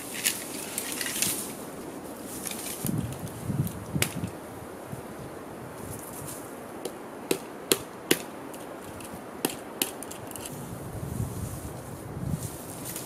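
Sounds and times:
blade chopping tree branch: 0:04.0 - 0:04.3, 0:06.8 - 0:08.4.

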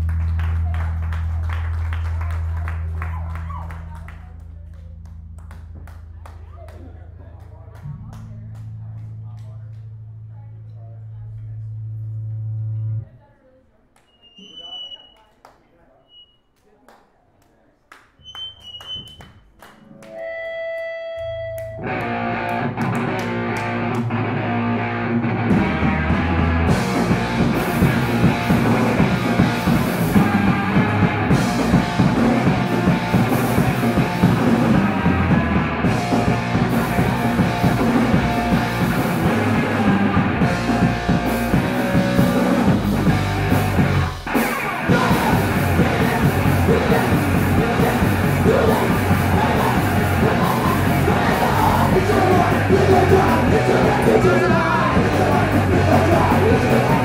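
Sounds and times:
punk rock band playing: 0:20.0 - 0:57.0
drums and cymbals: 0:26.2 - 0:57.0.

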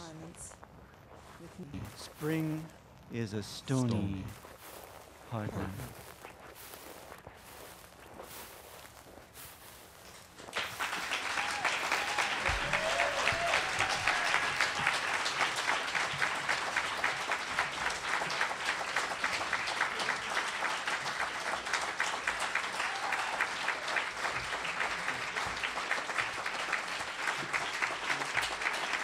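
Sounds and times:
audience applauding: 0:10.4 - 0:29.0.

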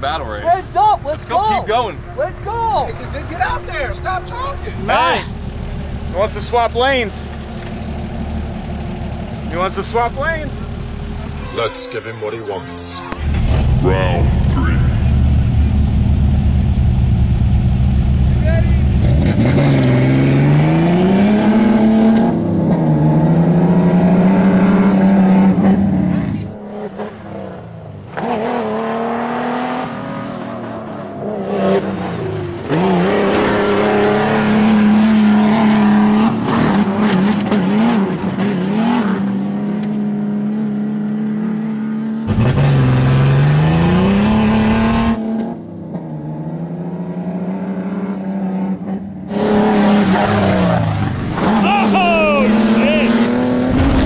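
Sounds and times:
trucks racing at high revs: 0:00.0 - 0:54.0.

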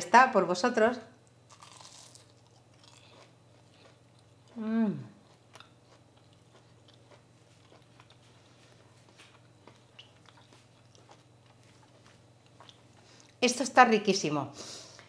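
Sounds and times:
crunchy chewing: 0:01.5 - 0:13.4.

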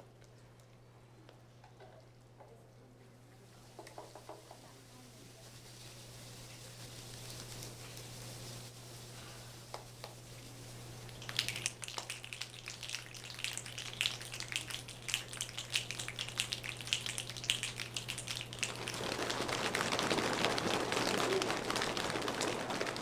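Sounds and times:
hands clapping: 0:11.1 - 0:23.0.

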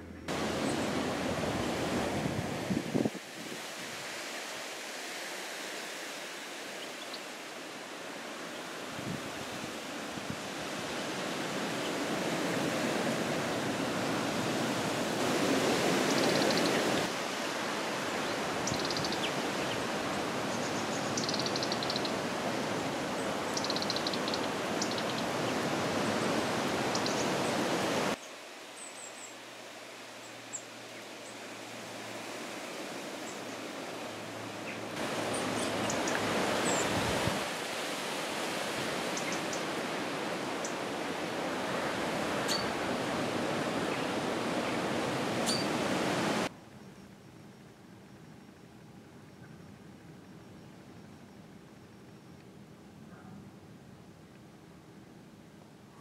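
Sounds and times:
small birds chirping: 0:20.5 - 0:22.2, 0:23.2 - 0:25.6, 0:26.9 - 0:27.6, 0:34.6 - 0:36.9.

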